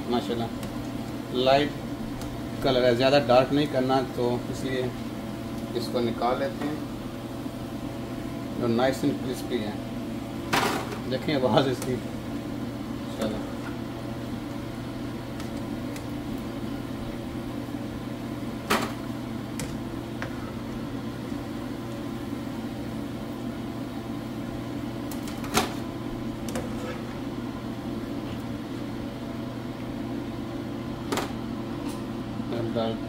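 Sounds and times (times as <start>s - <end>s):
steady low hum: 0.0s - 33.0s.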